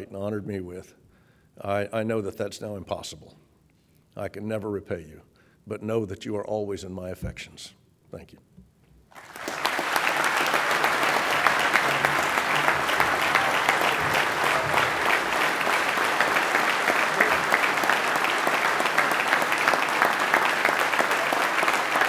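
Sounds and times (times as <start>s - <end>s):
audience applauding: 9.1s - 22.0s.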